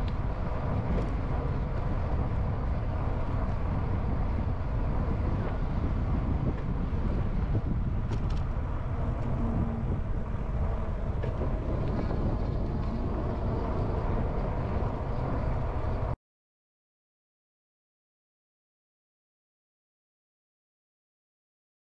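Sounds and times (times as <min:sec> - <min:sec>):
wind buffeting microphone: 0:00.0 - 0:16.2.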